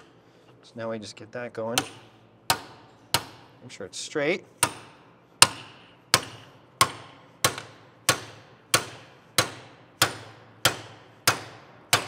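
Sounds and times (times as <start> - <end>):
hammer striking metal: 1.8 - 3.5, 4.6 - 12.0.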